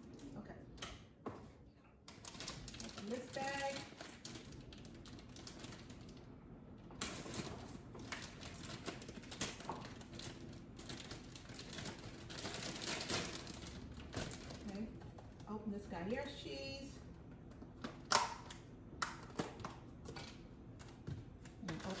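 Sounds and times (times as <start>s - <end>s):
plastic bag crinkling: 2.1s - 15.6s.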